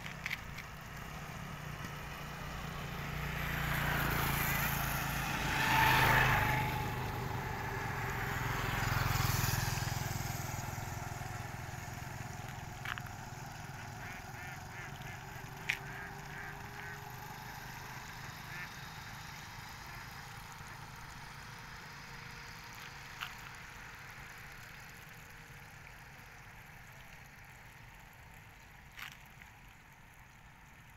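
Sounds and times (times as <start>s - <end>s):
motorcycle passing by: 0.0s - 27.5s.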